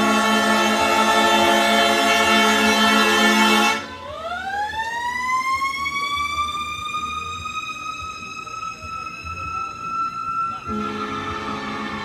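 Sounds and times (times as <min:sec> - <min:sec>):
fire engine air horn chord: 0:00.0 - 0:04.0, 0:10.6 - 0:12.0.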